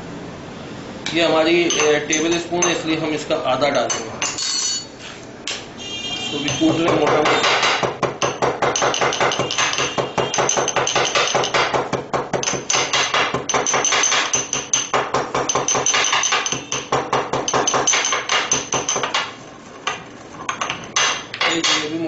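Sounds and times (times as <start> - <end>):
pestle pounding in mortar: 6.4 - 19.4.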